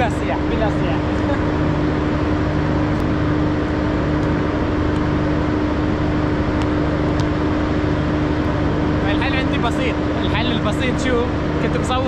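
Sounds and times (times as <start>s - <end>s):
machine hum drone: 0.0s - 12.0s.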